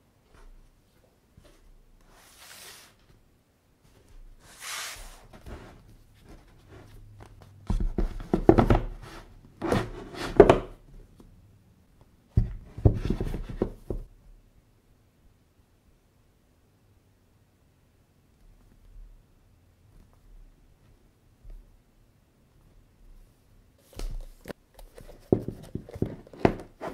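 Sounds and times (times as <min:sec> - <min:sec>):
books sliding swishes: 0:01.4 - 0:03.2, 0:03.9 - 0:07.0
books knocking on wooden table: 0:07.6 - 0:09.0, 0:12.4 - 0:14.1, 0:25.1 - 0:26.9.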